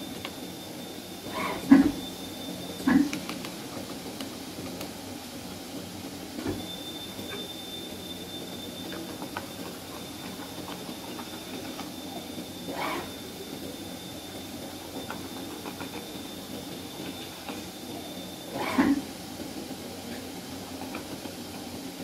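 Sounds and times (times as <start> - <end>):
thin high whine: 0.0 - 3.7, 6.3 - 19.4
cutting machine whirring: 6.4 - 21.7.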